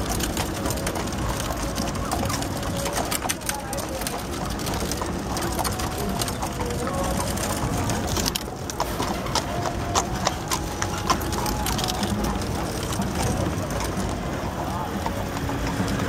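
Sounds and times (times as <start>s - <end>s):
hooves clip-clopping on pavement: 0.0s - 16.0s
horse and cart passing: 0.0s - 16.0s.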